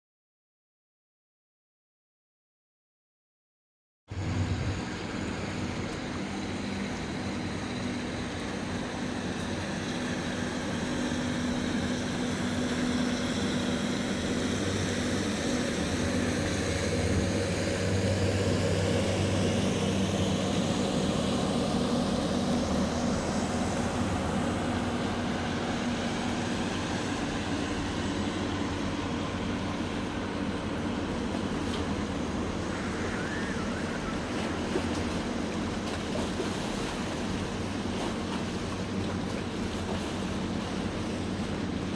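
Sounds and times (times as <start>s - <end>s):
rushing noise: 4.1s - 5.7s
engine drone: 4.1s - 41.9s.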